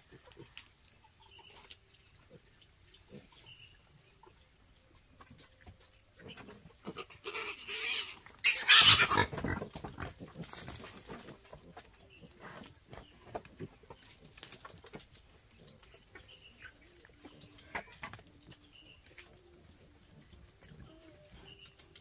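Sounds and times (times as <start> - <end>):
piglet squealing: 7.2 - 9.3.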